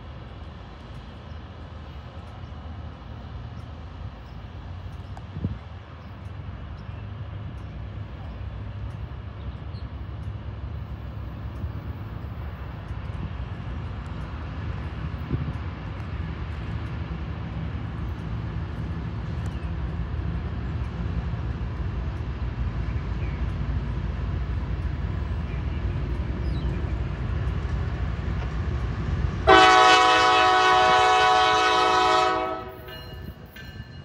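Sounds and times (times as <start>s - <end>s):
diesel locomotive engine rumble: 0.0s - 34.0s.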